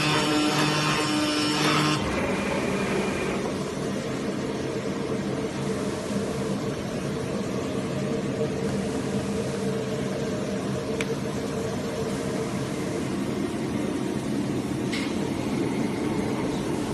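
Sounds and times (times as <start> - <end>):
cutting machine whir and hum: 0.0 - 5.4.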